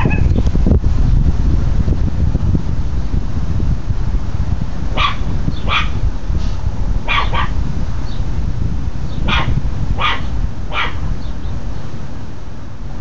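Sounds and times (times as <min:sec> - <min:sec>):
puppy barking: 0:00.0 - 0:00.3, 0:05.0 - 0:06.0, 0:07.0 - 0:07.6, 0:09.2 - 0:11.1
steady low rumble: 0:00.0 - 0:13.0.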